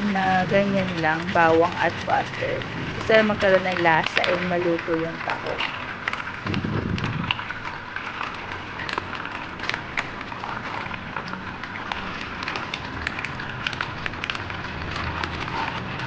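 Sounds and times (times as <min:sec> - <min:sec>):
mussels sizzling and crackling: 0:00.0 - 0:16.0.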